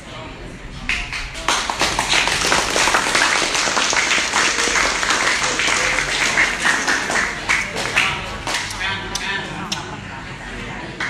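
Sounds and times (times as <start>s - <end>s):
crowd clapping: 0.9s - 8.9s.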